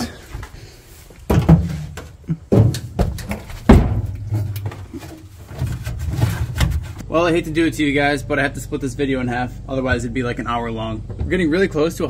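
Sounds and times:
dull thumps and knocks: 0:01.3 - 0:07.0.

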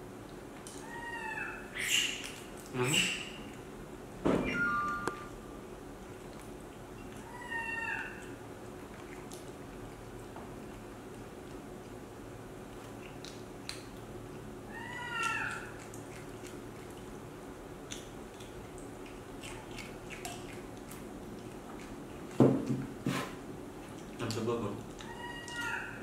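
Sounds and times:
baby monkey squeaky call: 0:00.9 - 0:02.3.

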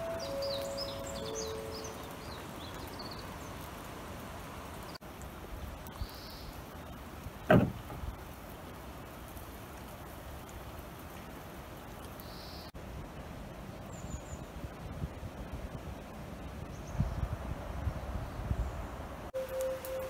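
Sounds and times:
small birds chirping: 0:00.0 - 0:05.1, 0:05.9 - 0:07.2, 0:11.9 - 0:12.8, 0:13.7 - 0:14.7, 0:15.8 - 0:19.0
rain-like noise: 0:00.0 - 0:20.0.

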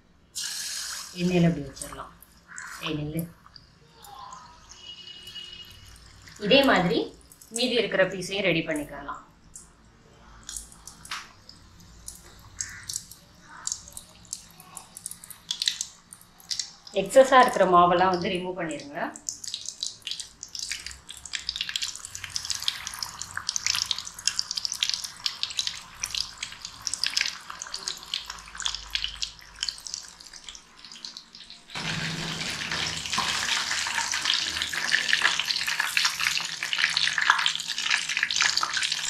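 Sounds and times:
chicken deep-frying in oil: 0:00.4 - 0:03.1, 0:11.9 - 0:39.0.

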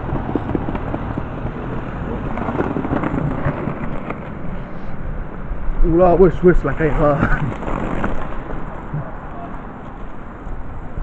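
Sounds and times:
faint voices: 0:08.9 - 0:09.7.

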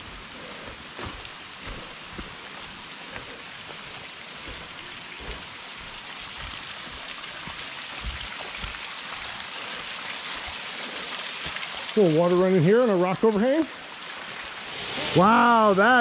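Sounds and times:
waterfall splattering on ground: 0:05.2 - 0:16.0.

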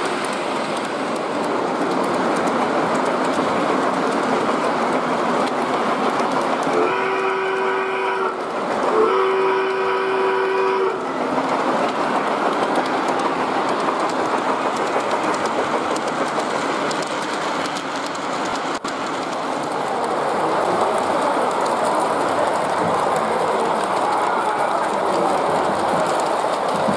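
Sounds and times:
model trains rumbling and clattering: 0:00.0 - 0:26.9
model steam locomotive whistle: 0:06.7 - 0:11.0.

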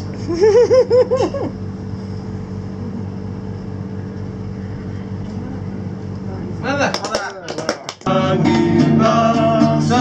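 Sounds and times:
low mechanical hum: 0:00.0 - 0:10.0
person laughing: 0:00.2 - 0:01.6.

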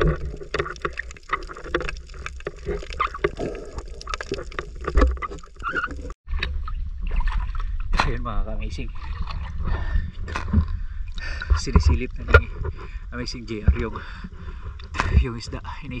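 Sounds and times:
wind rumbling on microphone: 0:04.9 - 0:16.0.

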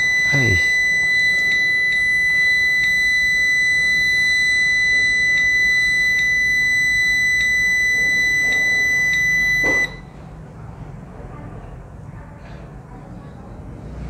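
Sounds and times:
high-pitched buzzer tone: 0:00.0 - 0:10.0.

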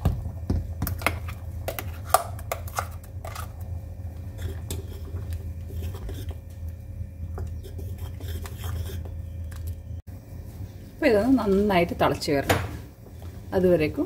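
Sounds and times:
low hum: 0:00.0 - 0:12.0
metal spoon scraping a pan: 0:04.3 - 0:06.5, 0:07.4 - 0:09.4.

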